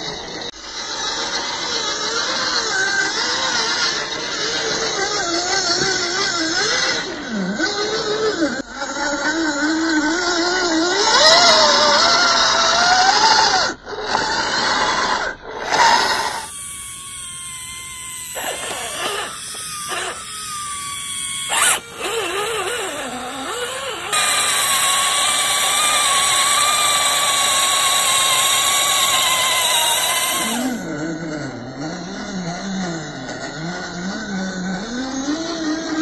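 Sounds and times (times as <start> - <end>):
electric motors whining: 15.6 - 30.9.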